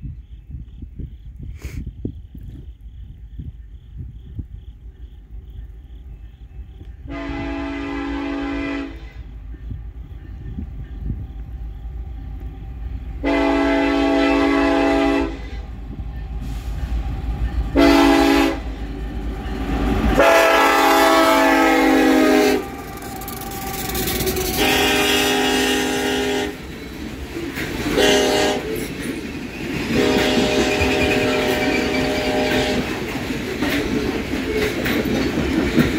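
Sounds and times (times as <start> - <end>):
diesel locomotives rumbling: 0.2 - 35.9
train air horn blasts: 7.1 - 9.5, 13.2 - 15.8, 17.7 - 18.8, 19.7 - 26.6, 27.9 - 28.8, 29.9 - 33.0
freight cars rolling on rails: 15.6 - 35.9.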